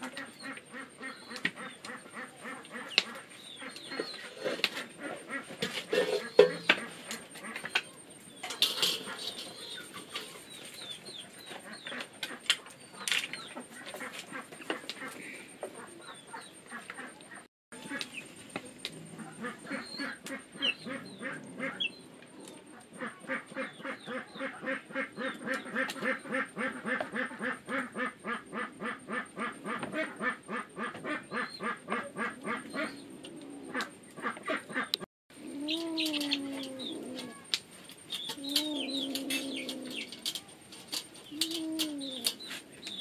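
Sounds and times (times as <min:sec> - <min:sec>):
ducks quacking: 0:00.0 - 0:18.2, 0:19.1 - 0:22.0, 0:22.6 - 0:33.1, 0:33.7 - 0:37.5.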